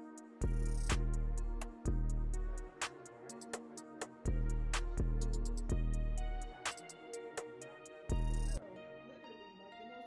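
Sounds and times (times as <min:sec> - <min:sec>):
ticking rhythm: 0:00.0 - 0:08.6
deep bass notes: 0:00.4 - 0:02.8, 0:04.3 - 0:06.6.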